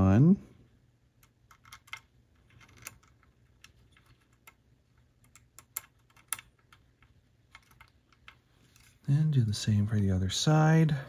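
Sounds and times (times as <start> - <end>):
plastic model parts clicking: 1.2 - 9.0.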